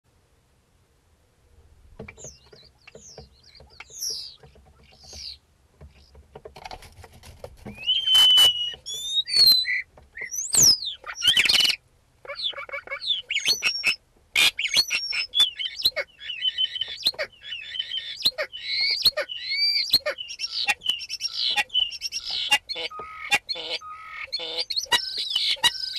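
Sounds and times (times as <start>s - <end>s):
starling singing: 2.1s - 6.2s, 7.7s - 25.9s.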